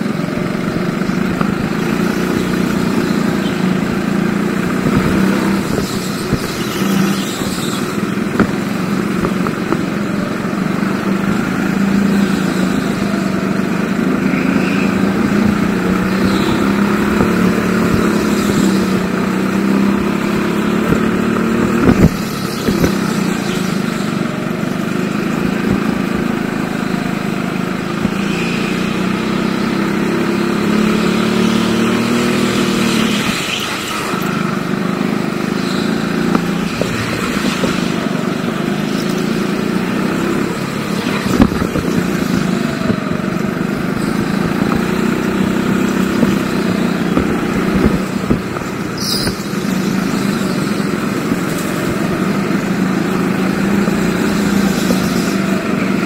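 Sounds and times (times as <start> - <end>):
go-kart engine running: 0.0 - 56.0.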